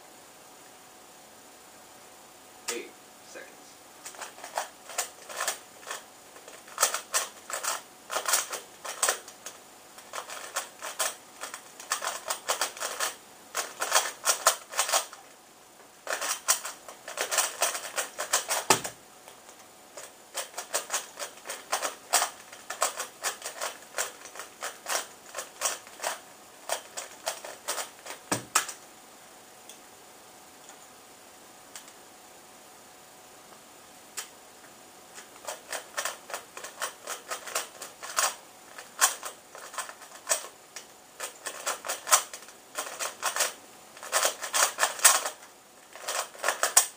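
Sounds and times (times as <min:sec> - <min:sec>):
speed cube plastic clicking: 0:04.0 - 0:15.2, 0:16.0 - 0:28.8, 0:35.2 - 0:46.9.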